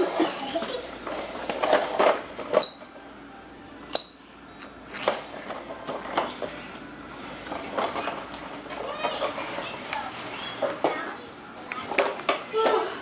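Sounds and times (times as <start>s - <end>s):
plastic toy clattering on wooden floor: 0.6s - 2.8s, 7.5s - 9.6s, 11.8s - 12.9s
high squeaks: 2.5s - 3.0s.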